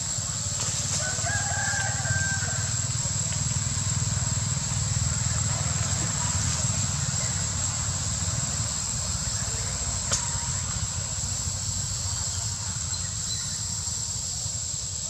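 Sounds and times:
rooster crowing: 0.9 - 3.2.

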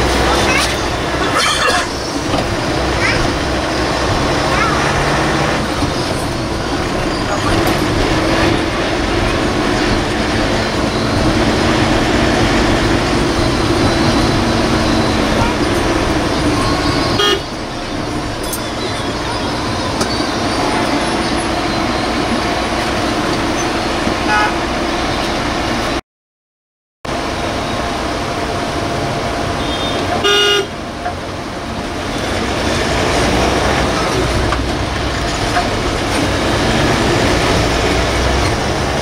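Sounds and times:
bus engine and road noise: 0.0 - 26.0, 27.0 - 39.0
vehicle horn honks: 17.2 - 17.5, 24.3 - 24.6, 29.6 - 30.7.

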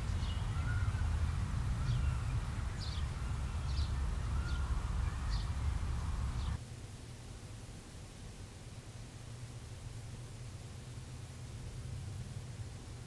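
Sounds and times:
low whistled bird notes: 0.0 - 6.6
small birds chirping: 0.0 - 6.6
steady low rumble: 0.0 - 13.0.

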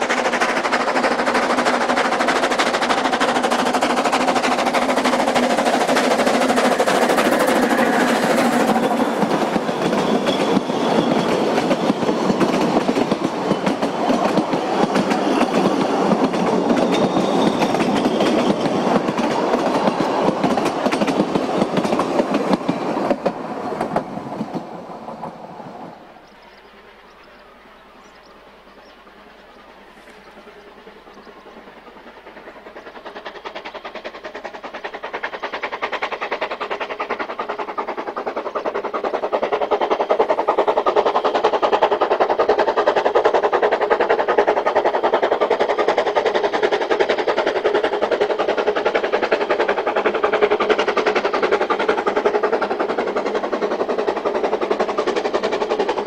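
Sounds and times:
steam locomotive chuffing: 0.0 - 56.0.

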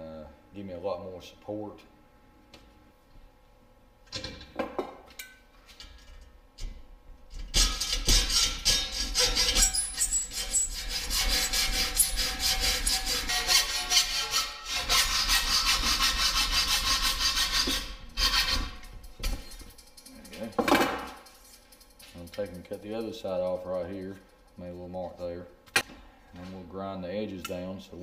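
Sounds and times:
hacksaw cutting metal: 7.5 - 18.9.

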